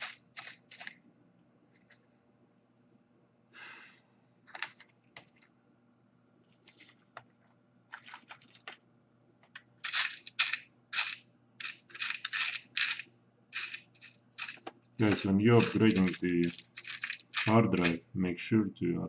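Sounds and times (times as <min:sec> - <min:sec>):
metal screws clinking: 0:13.6 - 0:18.0.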